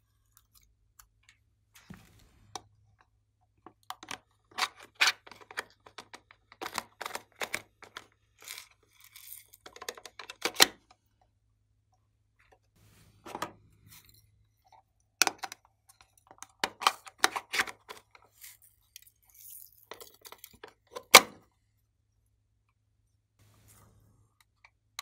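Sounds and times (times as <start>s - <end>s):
plastic toy case clicks and rattles: 3.8s - 10.8s.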